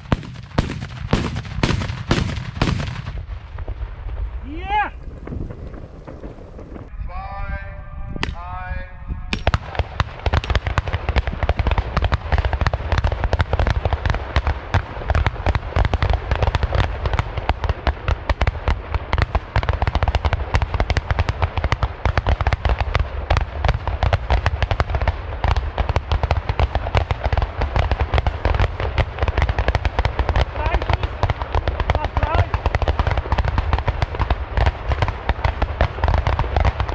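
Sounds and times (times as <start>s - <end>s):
salute gun shots: 0.0s - 3.2s.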